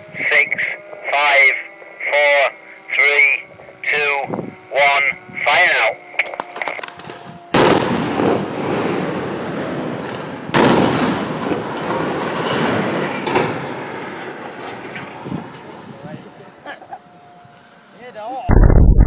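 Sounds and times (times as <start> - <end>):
loud explosive blasts: 7.0 - 14.1, 18.5 - 19.0
small explosive cracks: 10.0 - 13.7
rumble of structure collapsing: 18.5 - 19.0.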